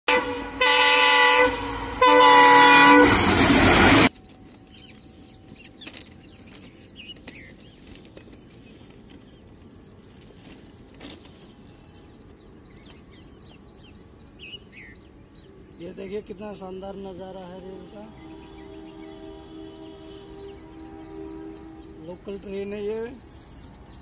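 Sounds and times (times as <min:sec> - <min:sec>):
locomotive horn blasts: 0:00.1 - 0:04.1, 0:17.4 - 0:22.9
train rumbling: 0:00.1 - 0:24.0
birds chirping: 0:04.1 - 0:24.0.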